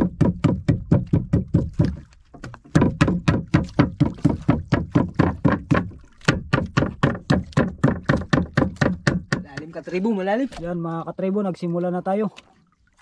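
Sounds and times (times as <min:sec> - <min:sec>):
knife beating squid on wood: 0:02.7 - 0:09.8.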